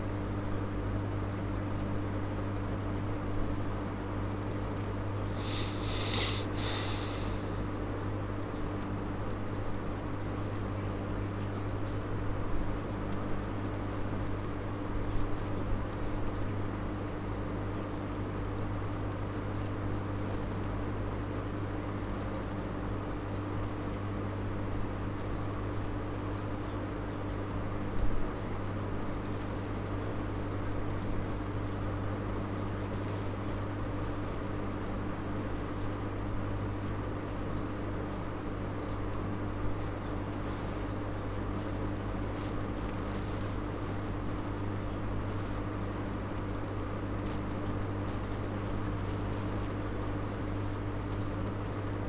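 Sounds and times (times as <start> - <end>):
electrical hum and hiss: 0.0 - 52.0.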